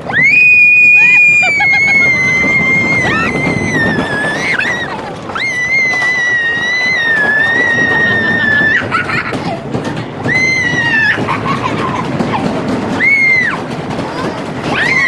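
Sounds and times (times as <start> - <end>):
riders screaming: 0.0 - 9.2, 10.2 - 11.4
coaster train rumbling on track: 0.0 - 15.0.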